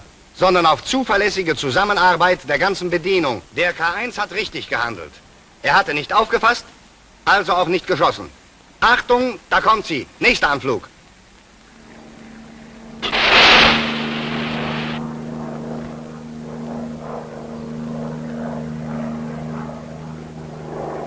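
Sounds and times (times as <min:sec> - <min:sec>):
propeller engine droning: 0:11.7 - 0:21.0
loud rushing launch burst: 0:13.0 - 0:15.0.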